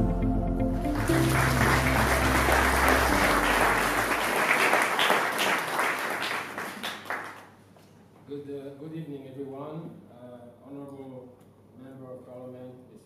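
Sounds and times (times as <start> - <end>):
background music: 0.0 - 5.1
audience applauding: 0.9 - 7.6.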